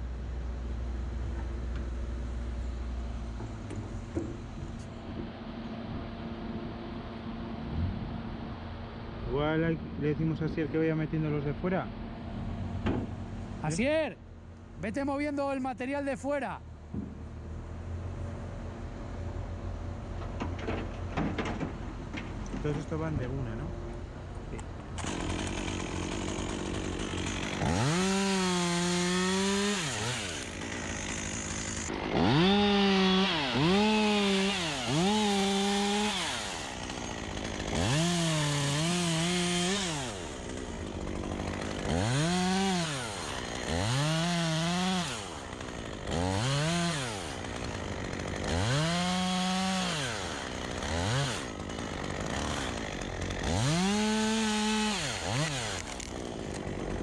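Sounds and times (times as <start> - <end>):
chainsaw revving and idling: 25.0 - 57.0.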